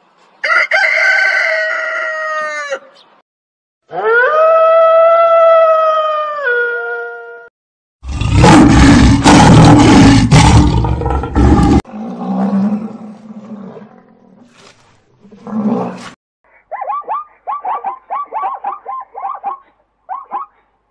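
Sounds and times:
lion roaring: 0:08.0 - 0:14.5, 0:15.2 - 0:16.2.

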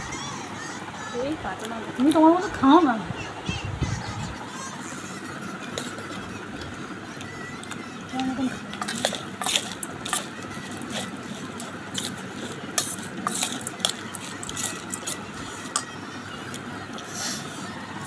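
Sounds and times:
metal spoon scraping steel bowl: 0:05.1 - 0:06.3, 0:07.6 - 0:17.5.

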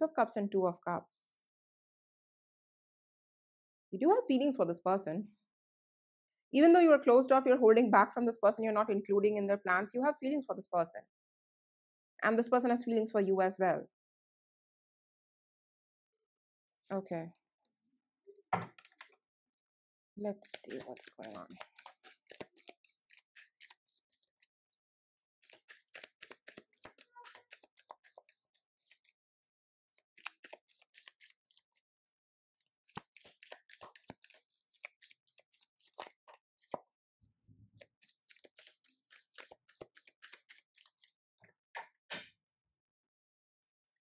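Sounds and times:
cards being shuffled: 0:20.4 - 0:24.5, 0:25.4 - 0:29.1, 0:30.0 - 0:31.8, 0:32.8 - 0:36.8, 0:37.8 - 0:41.2.

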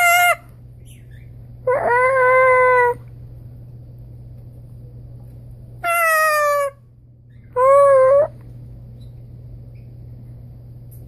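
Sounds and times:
faint steady hum: 0:00.0 - 0:11.0
person imitating bird calls: 0:07.5 - 0:08.4.

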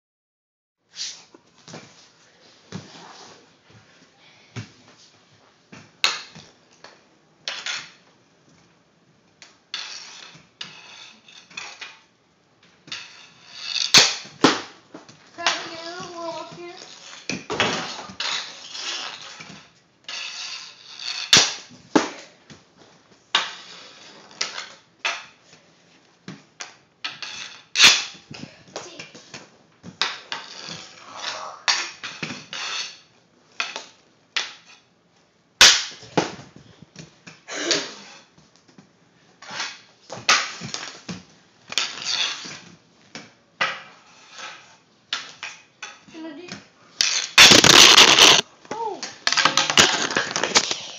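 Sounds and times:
puck scraping across concrete: 0:09.7 - 0:12.0, 0:12.8 - 0:14.7, 0:15.4 - 0:22.2, 0:23.3 - 0:24.8, 0:29.2 - 0:33.0, 0:39.4 - 0:42.7, 0:43.8 - 0:44.8, 0:47.0 - 0:48.5, 0:49.3 - 0:50.9
hockey stick hitting puck: 0:12.8 - 0:22.3, 0:35.6 - 0:36.5, 0:39.4 - 0:42.6, 0:43.2 - 0:50.9.

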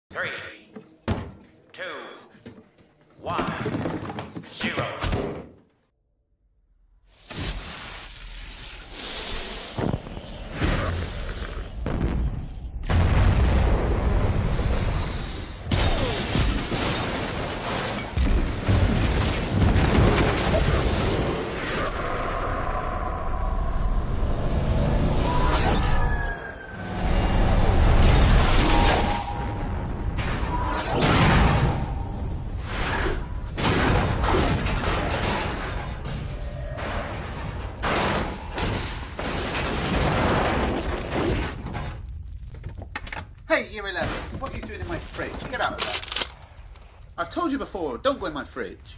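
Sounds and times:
rumbling explosion: 0:11.8 - 0:17.5.

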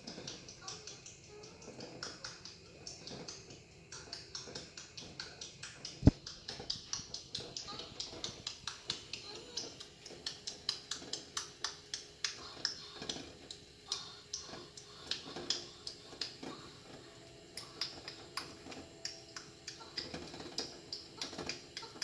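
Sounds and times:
eggs clicking in a cooking pot: 0:00.0 - 0:22.0.

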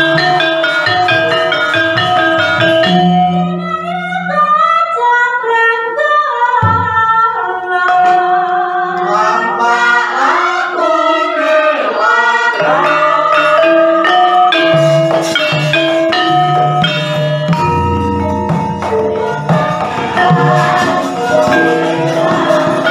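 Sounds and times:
bronze mallet instruments: 0:00.0 - 0:04.7, 0:07.7 - 0:22.9
group singing with held notes: 0:07.4 - 0:17.0, 0:18.5 - 0:22.9.

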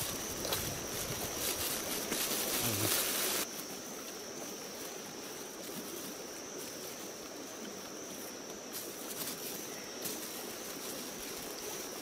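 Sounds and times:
insects droning: 0:00.0 - 0:12.0
outdoor ambience hiss: 0:00.0 - 0:12.0.

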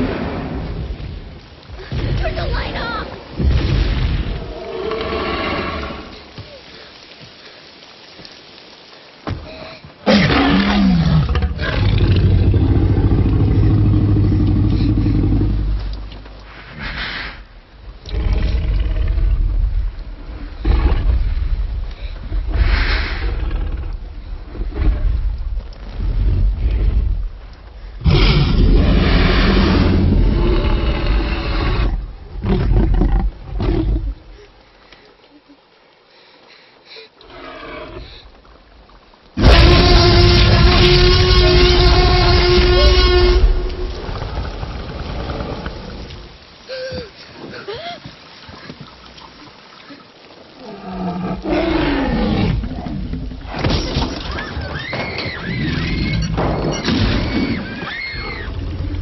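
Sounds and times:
deep dinosaur roar: 0:10.1 - 0:16.0, 0:28.0 - 0:34.2, 0:39.4 - 0:46.1, 0:50.6 - 0:53.4
dinosaur roaring: 0:28.0 - 0:34.1, 0:39.4 - 0:43.4.

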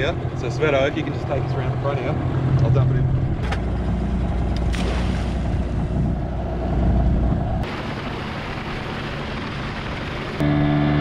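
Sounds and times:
boat motor running: 0:00.0 - 0:11.0
steady engine hum: 0:00.0 - 0:11.0
wind rumble on microphone: 0:01.1 - 0:07.7.

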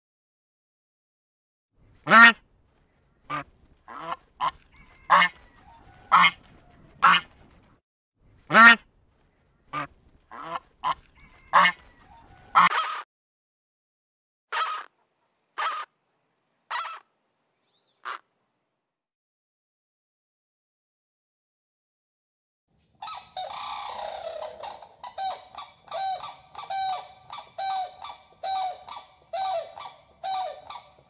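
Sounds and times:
goose honking: 0:02.1 - 0:02.4, 0:03.3 - 0:07.4, 0:09.7 - 0:13.0, 0:14.5 - 0:14.9, 0:15.6 - 0:15.9, 0:16.7 - 0:17.1, 0:18.0 - 0:18.2, 0:23.0 - 0:31.0
flamingos calling: 0:14.5 - 0:14.9, 0:15.6 - 0:15.9, 0:16.7 - 0:17.1, 0:23.0 - 0:31.0.

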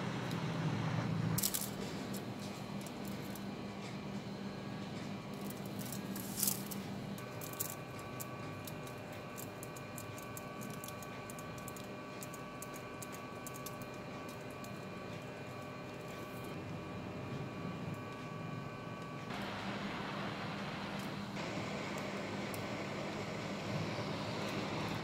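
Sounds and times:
steady low hum: 0:00.0 - 0:25.0
solder crackling and sizzling: 0:05.3 - 0:16.5, 0:19.2 - 0:25.0.

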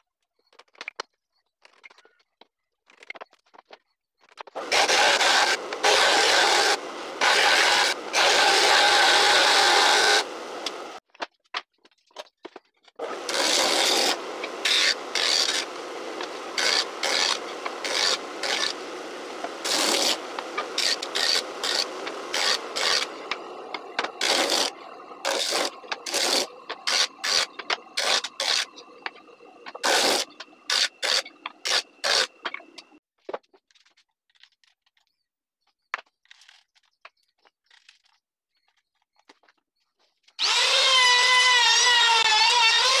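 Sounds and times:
wood grinding on disc sander: 0:04.6 - 0:11.0, 0:13.0 - 0:33.0, 0:40.4 - 0:43.0.

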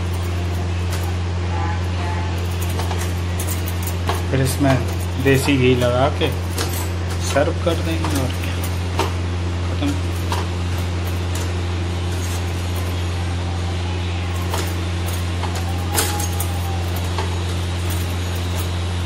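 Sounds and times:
kitchen utensils clinking: 0:00.0 - 0:19.0
steady low hum: 0:00.0 - 0:19.0.

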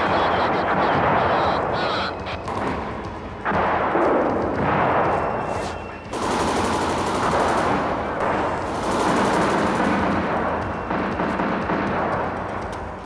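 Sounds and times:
machine-gun automatic bursts: 0:06.1 - 0:12.7.

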